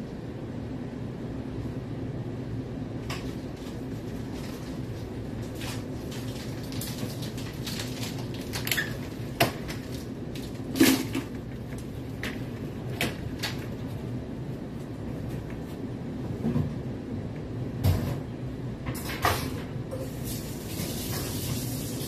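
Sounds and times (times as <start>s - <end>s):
steady low hum: 0.0s - 22.0s
kitchen items clattering: 3.1s - 13.8s.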